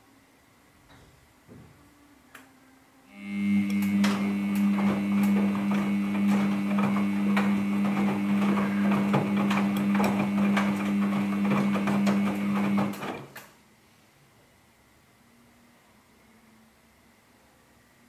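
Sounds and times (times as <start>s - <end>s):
washing machine drum turning: 3.6s - 13.4s.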